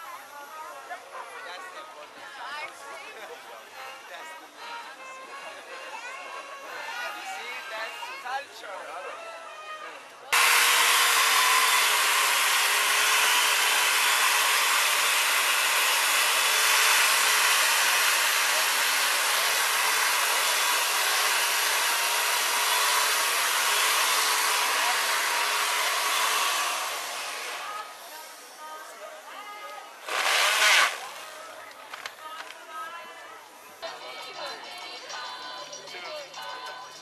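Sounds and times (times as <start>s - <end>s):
chainsaw cutting ice: 10.4s - 28.4s, 30.0s - 31.6s.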